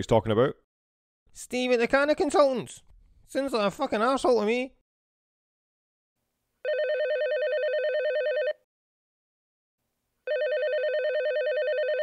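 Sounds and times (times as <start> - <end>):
telephone ringing: 6.6 - 8.6, 10.3 - 12.0.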